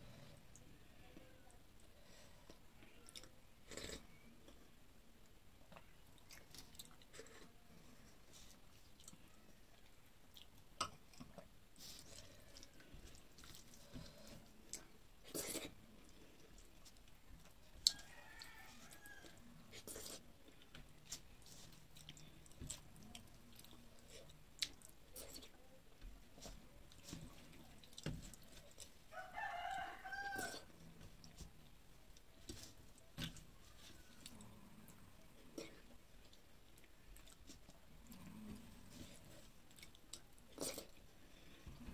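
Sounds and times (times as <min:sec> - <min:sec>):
chewing and mouth sounds: 0:05.6 - 0:07.6, 0:08.3 - 0:18.5, 0:19.2 - 0:25.6, 0:30.4 - 0:41.1
rooster crowing: 0:17.9 - 0:19.4, 0:29.1 - 0:30.7.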